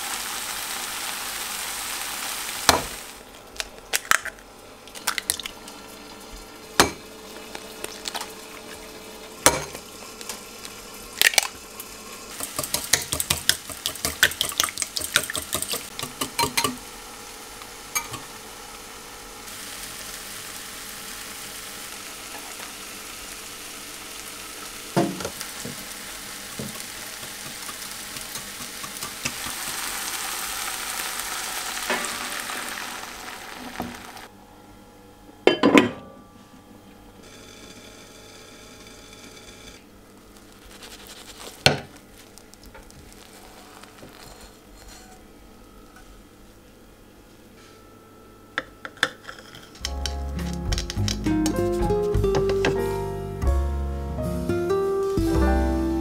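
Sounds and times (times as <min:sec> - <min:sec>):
tomato sizzling in oil: 0:00.0 - 0:03.4, 0:05.0 - 0:34.3, 0:40.1 - 0:45.3
pan and utensil clatters: 0:12.4 - 0:16.8.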